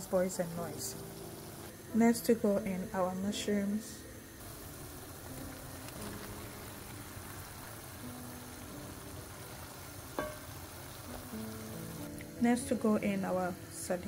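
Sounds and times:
stew bubbling in a pan: 0:04.4 - 0:13.6.

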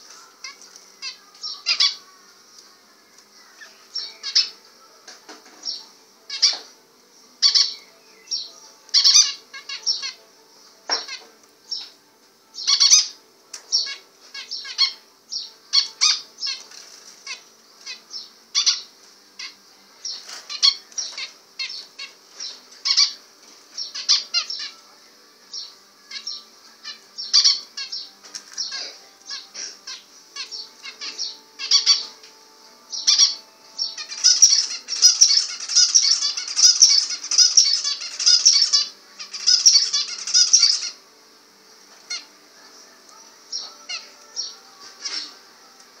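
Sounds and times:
finches calling and singing: 0:00.0 - 0:46.0.

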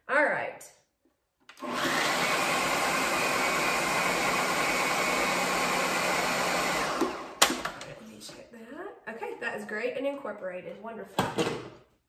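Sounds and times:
food processor running: 0:01.5 - 0:07.6.

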